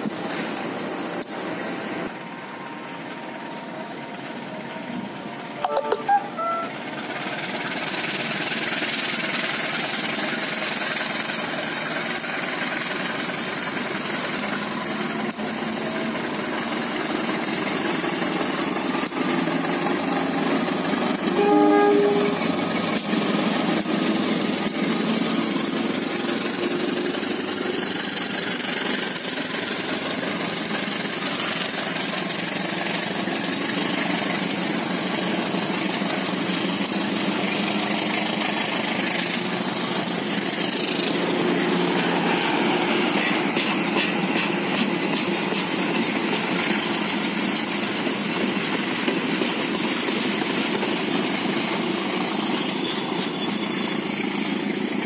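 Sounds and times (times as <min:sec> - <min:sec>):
locomotive and wheels rumbling: 0:00.0 - 0:55.0
train horn toots: 0:05.6 - 0:06.8, 0:21.3 - 0:22.6.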